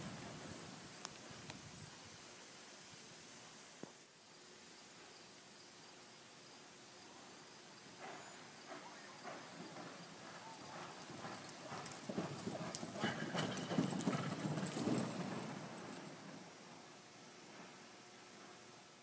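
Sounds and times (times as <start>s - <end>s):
horse hoofbeats on dirt: 8.0s - 16.9s
hooves spraying dirt: 8.0s - 18.6s.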